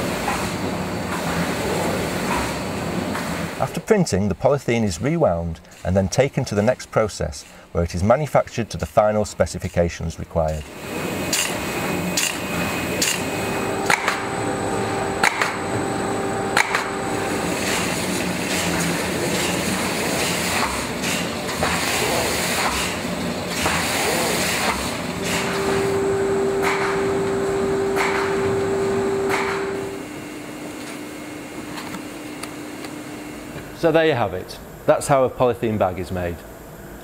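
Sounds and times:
steady hum: 0.0 - 35.0
machinery mechanical din: 10.6 - 30.0
sharp machine clacks: 11.3 - 25.9, 26.6 - 27.2, 27.9 - 28.5, 29.2 - 29.9.

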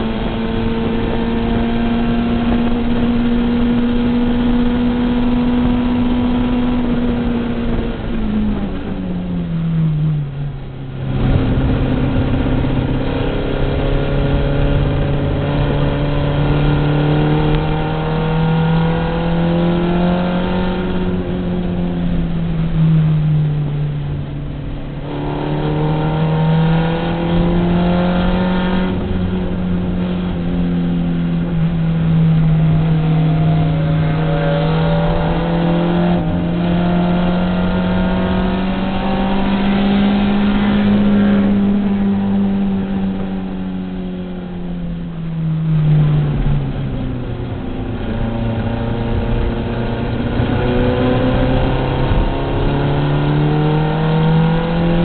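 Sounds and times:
race car engine at high revs: 0.0 - 55.0.

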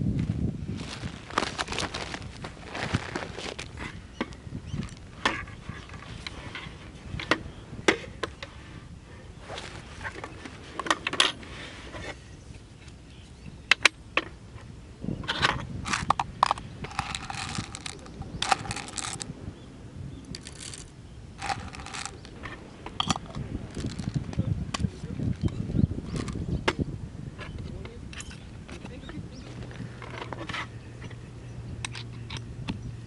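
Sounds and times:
coffee beans rattling into grinder: 15.9 - 19.3, 20.4 - 22.3, 23.1 - 24.2
coffee grinder sliding out of bag: 16.9 - 19.2, 20.4 - 22.2
metal jar lid opening: 21.4 - 22.3.

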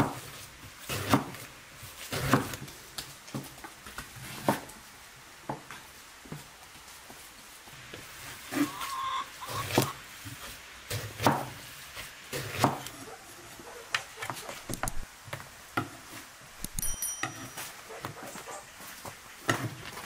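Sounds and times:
knife slicing vegetable: 10.9 - 13.2.

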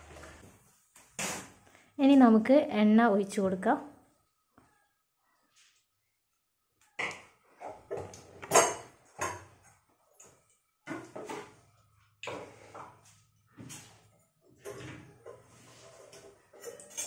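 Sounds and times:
kitchen knocks and clatters: 6.9 - 17.0.

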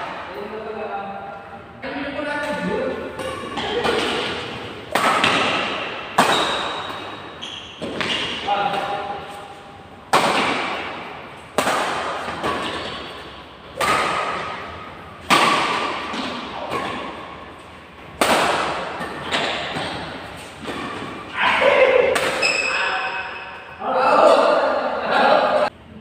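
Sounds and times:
badminton racket hitting shuttlecock: 3.0 - 23.6.

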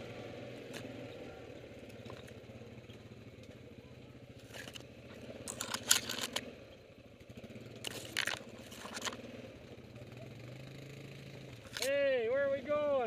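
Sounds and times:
atv engine running: 0.0 - 13.0
branches scraping against vehicle: 4.4 - 6.5, 7.7 - 9.4, 11.6 - 12.0.

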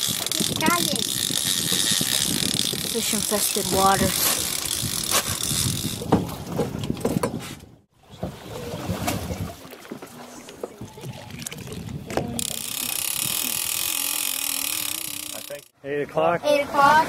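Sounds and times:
boat on open sea: 0.0 - 17.0.

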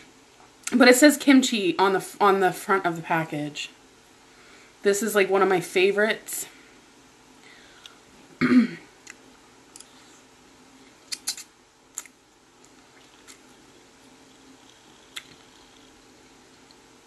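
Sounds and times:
mouth and fork clicks: 11.1 - 12.2
person chewing noodles: 11.1 - 13.6, 14.2 - 16.8.

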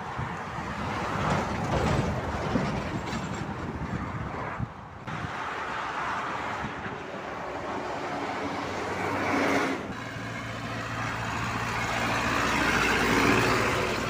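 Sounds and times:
motorway traffic noise: 0.0 - 14.0
truck driving past: 5.1 - 14.0.

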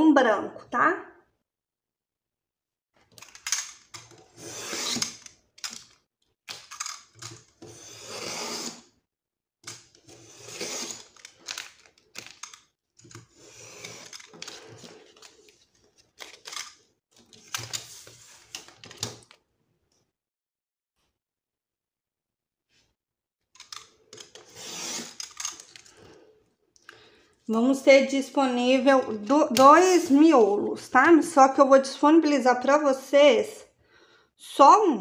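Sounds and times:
paper cutting and rustling: 3.2 - 5.9, 9.7 - 19.3, 23.6 - 26.1.

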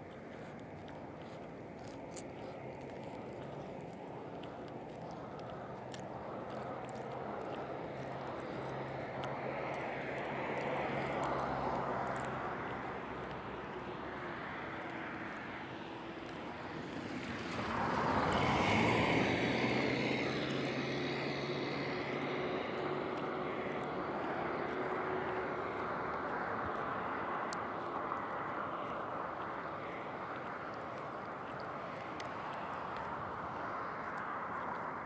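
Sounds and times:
vehicle engine hum and road noise: 0.0 - 35.0
car passing by: 4.5 - 35.0.

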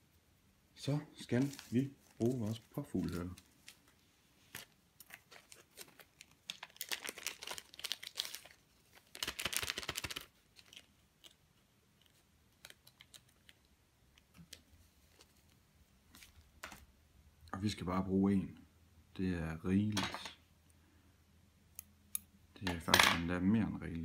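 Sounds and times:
plastic bag crinkling: 1.2 - 11.4, 12.0 - 13.7.

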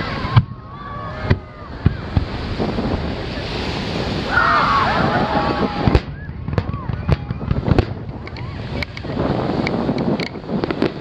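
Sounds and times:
fireworks bursting: 1.2 - 4.3, 5.6 - 11.0.

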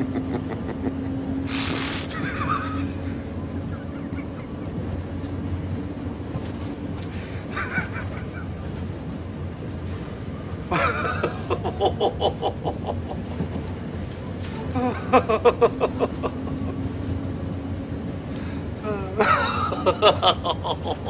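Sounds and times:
loud rhythmic laughter: 0.0 - 1.3, 2.0 - 5.1, 7.5 - 8.8, 10.7 - 13.9, 14.8 - 17.0, 19.1 - 21.0
stifled laughter: 0.0 - 4.9
metro carriage rumble: 0.0 - 21.0.

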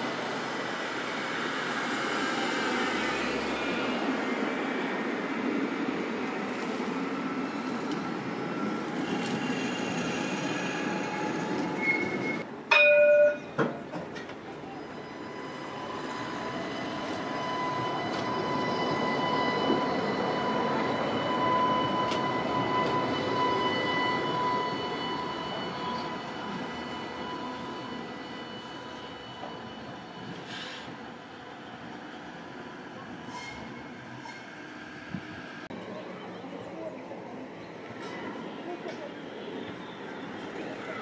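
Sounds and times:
tram rumble: 0.0 - 41.0
tram warning blast: 8.6 - 31.6
tram motors whining: 13.9 - 36.9.

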